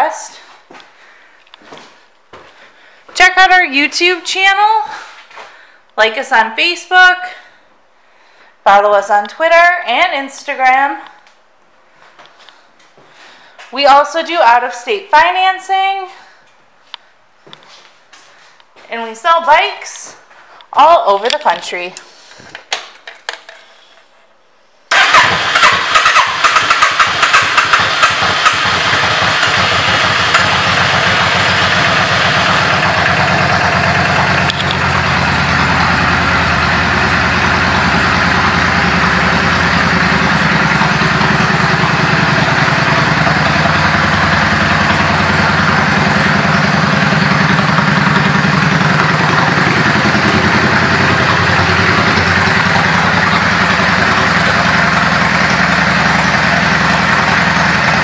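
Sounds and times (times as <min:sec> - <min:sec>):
motorcycle engine starting and idling: 0:24.9 - 0:58.0.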